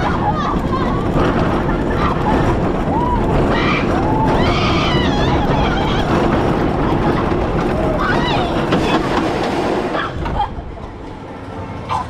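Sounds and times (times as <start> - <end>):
riders crying out: 0.0 - 9.1
coaster train rumbling on track: 0.0 - 12.0
rush of wind: 0.0 - 12.0.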